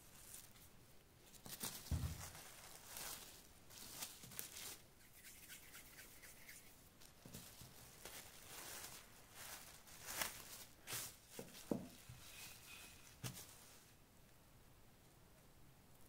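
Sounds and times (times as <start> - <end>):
cling film rustling and crinkling: 0.0 - 4.9, 7.0 - 13.9.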